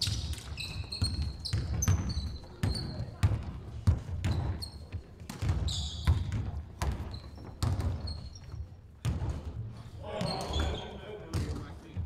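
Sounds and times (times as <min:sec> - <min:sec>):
shoes squeaking on floor: 0:00.0 - 0:03.2, 0:04.2 - 0:08.8, 0:10.1 - 0:11.1
basketball bouncing on wooden floor: 0:00.0 - 0:09.5.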